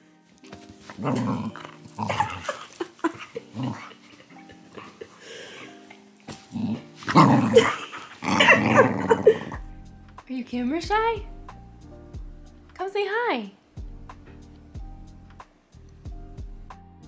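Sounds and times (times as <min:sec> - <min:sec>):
faint background music: 0:00.0 - 0:17.0
puppy vocalizing: 0:00.8 - 0:05.2, 0:06.4 - 0:09.6.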